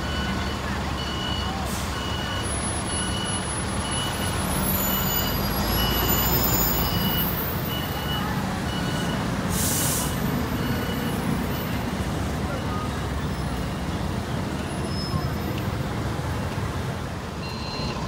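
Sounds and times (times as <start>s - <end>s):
bus engine rumble: 0.0s - 18.0s
air brake hiss: 9.5s - 10.2s
high electronic beep: 17.4s - 18.0s.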